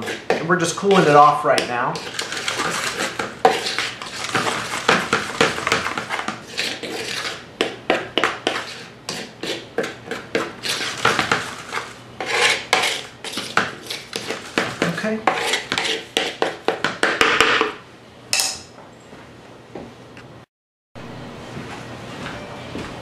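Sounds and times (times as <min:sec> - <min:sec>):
wooden paddle scraping wooden bowl: 0:00.0 - 0:16.8.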